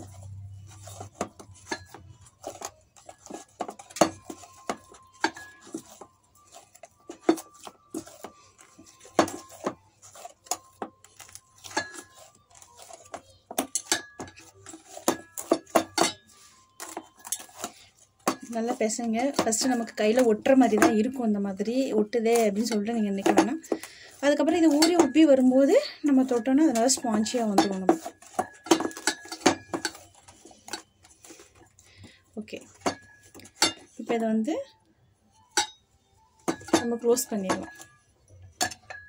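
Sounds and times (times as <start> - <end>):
dough knocking in metal bowl: 0.0 - 30.9, 36.4 - 39.0
metal bowl ringing: 3.2 - 6.1, 24.4 - 30.1, 35.5 - 39.0.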